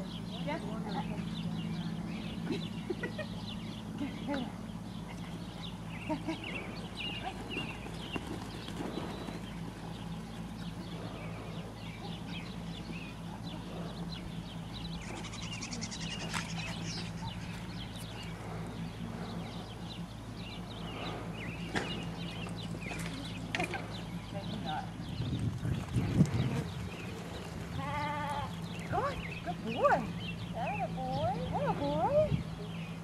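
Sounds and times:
low hum: 0.0 - 33.0
goat noises: 13.2 - 22.2.

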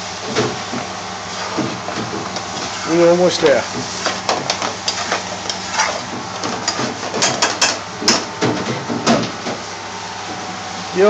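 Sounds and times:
steady kitchen hum: 0.0 - 11.0
metal spoon scraping frying pan: 1.3 - 7.8.

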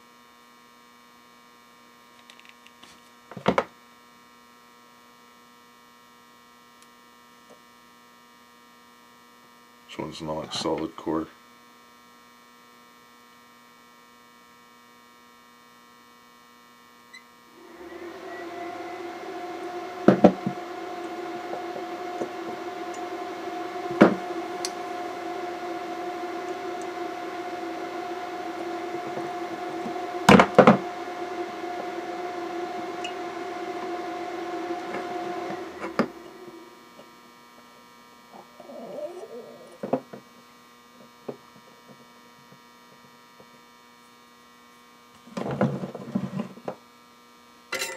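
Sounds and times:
electric tool buzzing: 17.5 - 37.7.

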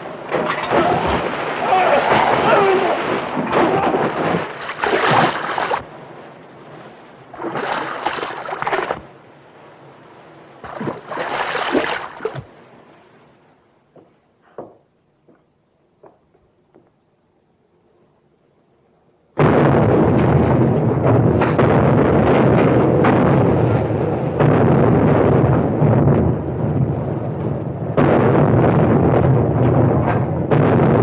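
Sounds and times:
seawater rushing and splashing down: 0.7 - 6.0, 7.3 - 9.2, 10.6 - 12.7.

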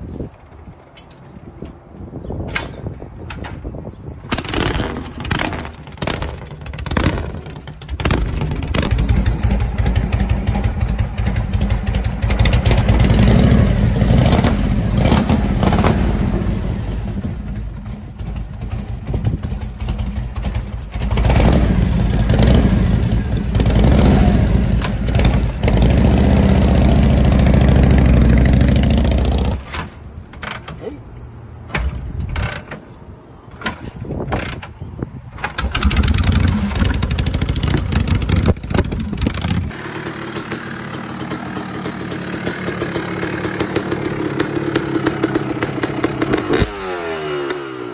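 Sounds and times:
motorcycle engine starting and revving: 3.3 - 30.8, 33.5 - 47.9
second motorcycle revving hard: 4.3 - 17.4, 20.9 - 29.6, 35.6 - 47.9.

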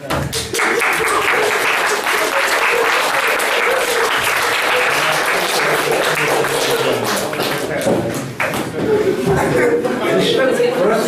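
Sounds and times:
audience applauding: 0.3 - 8.8.

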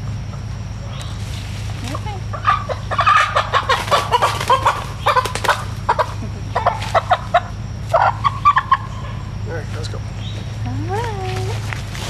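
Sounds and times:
chickens squawking and clucking: 2.0 - 9.4.

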